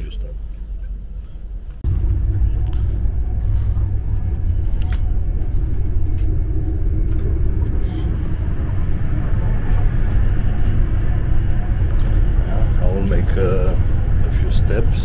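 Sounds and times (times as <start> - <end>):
train rumbling at speed: 0.0 - 15.0.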